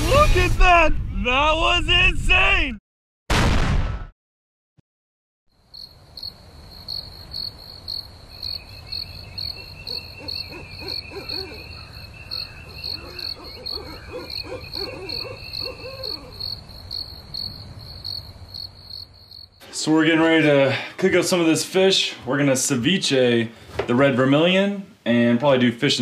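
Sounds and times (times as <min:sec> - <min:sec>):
insect trilling: 0:05.5 - 0:19.6
crickets chirping: 0:05.5 - 0:19.7.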